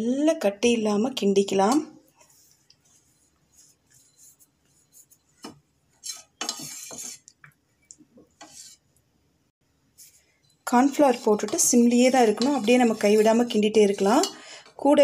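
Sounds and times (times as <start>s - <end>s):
spoon clinking and scraping pot: 3.6s - 7.3s, 10.4s - 14.7s.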